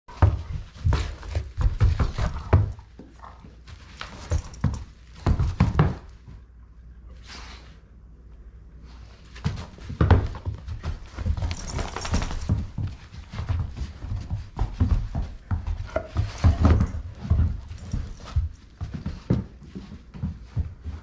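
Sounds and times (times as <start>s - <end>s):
thuds of paws and bodies on rug: 0.1s - 6.6s, 8.8s - 21.0s
scuffling: 8.9s - 21.0s.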